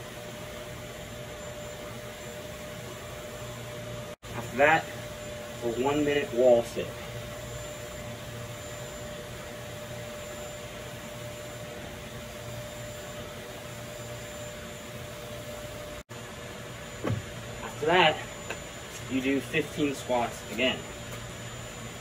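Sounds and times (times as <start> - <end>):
machine hum and hiss: 0.0 - 22.0.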